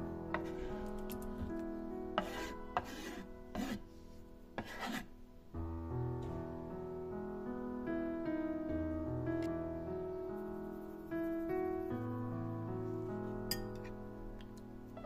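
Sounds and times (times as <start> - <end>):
soft background music: 0.0 - 15.0
knife scraping a wooden board: 2.2 - 3.8, 4.6 - 5.1.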